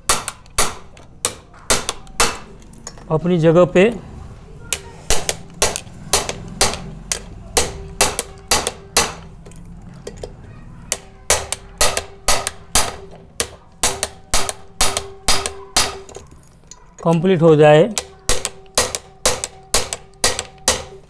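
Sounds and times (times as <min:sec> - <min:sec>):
hammer striking metal: 0:00.0 - 0:03.0, 0:04.7 - 0:09.4, 0:10.9 - 0:16.4, 0:17.9 - 0:21.0.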